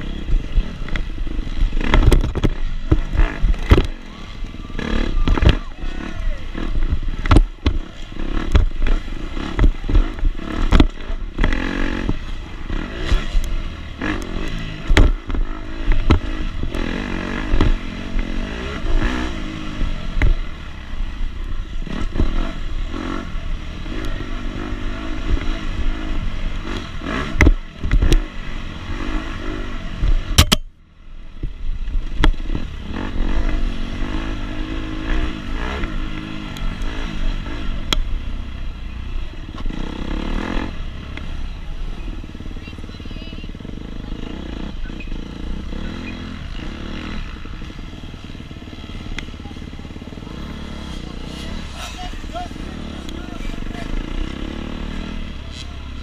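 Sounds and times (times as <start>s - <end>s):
motocross bike engine revving: 0.0s - 56.0s
sharp knocks and clatter: 1.7s - 4.0s, 6.8s - 7.8s, 8.4s - 12.2s, 14.8s - 16.8s.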